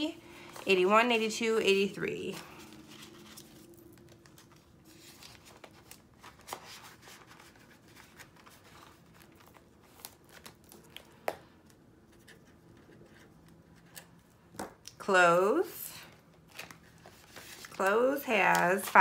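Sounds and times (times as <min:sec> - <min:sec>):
paper and plastic rustling: 0:02.1 - 0:11.2, 0:16.0 - 0:19.0.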